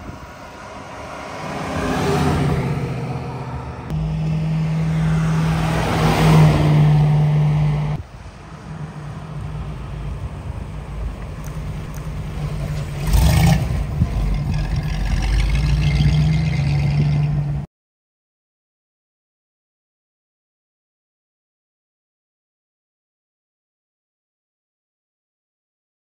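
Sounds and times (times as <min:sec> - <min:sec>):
car engine driving by: 0:00.0 - 0:17.7.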